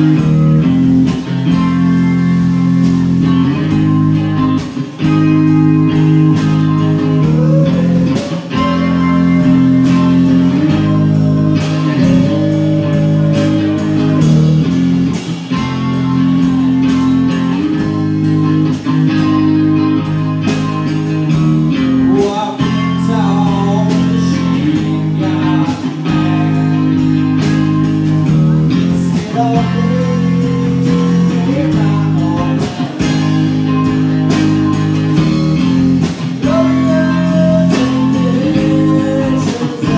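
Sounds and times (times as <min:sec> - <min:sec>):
bass guitar: 0:00.0 - 0:39.9
drums: 0:00.0 - 0:39.9
electric guitar chords: 0:00.0 - 0:39.9
person singing: 0:05.3 - 0:15.2, 0:21.6 - 0:27.4, 0:28.4 - 0:33.6, 0:36.0 - 0:39.9.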